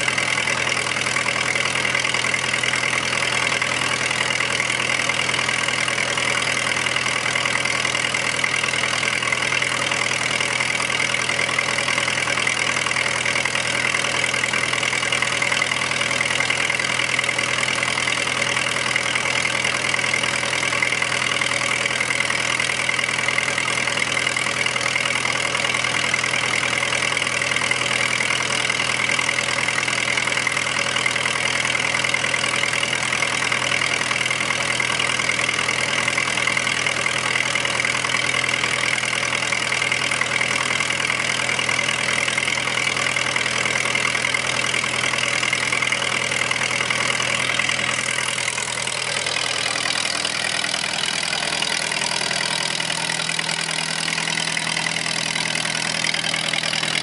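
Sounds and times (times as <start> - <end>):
generator engine running steadily: 0.0 - 57.0.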